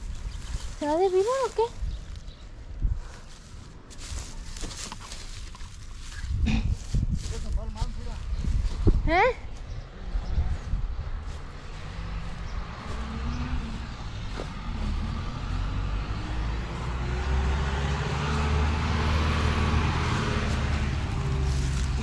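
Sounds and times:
vehicle engine running: 9.4s - 22.0s.

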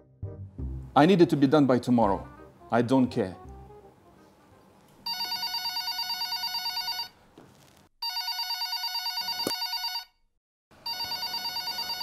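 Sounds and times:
telephone ringing: 5.0s - 7.2s, 8.0s - 10.2s, 10.8s - 12.0s.

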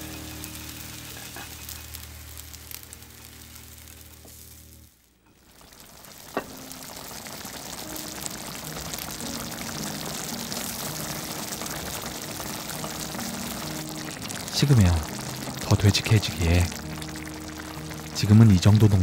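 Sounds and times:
stew bubbling in a pot: 5.3s - 19.0s.

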